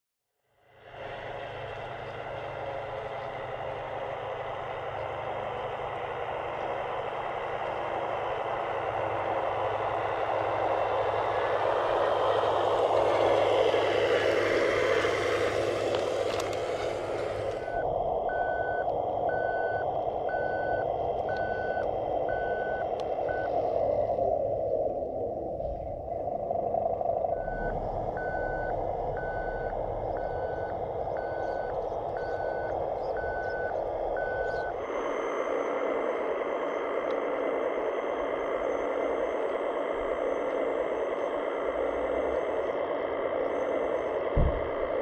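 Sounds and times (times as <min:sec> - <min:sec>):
model truck running: 0:00.8 - 0:19.8
electronic reversing beeper: 0:06.1 - 0:45.0.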